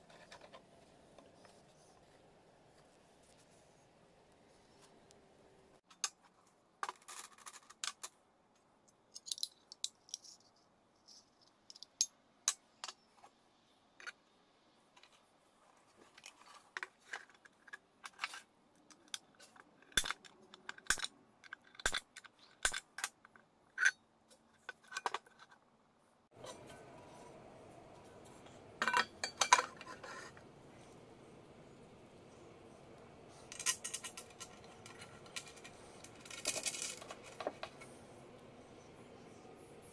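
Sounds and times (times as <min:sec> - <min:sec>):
small metal parts clinking: 0:09.1 - 0:10.4, 0:33.5 - 0:37.8.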